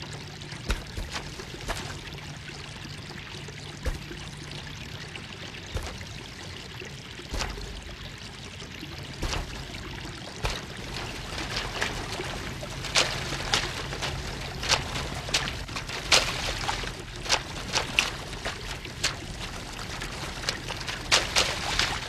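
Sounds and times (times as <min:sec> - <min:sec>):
hoes chopping dry soil: 0:00.6 - 0:02.2, 0:03.8 - 0:04.3, 0:05.7 - 0:06.3, 0:07.3 - 0:07.9, 0:09.2 - 0:09.8, 0:10.4 - 0:19.4, 0:20.0 - 0:22.0
steady hiss: 0:05.3 - 0:22.0.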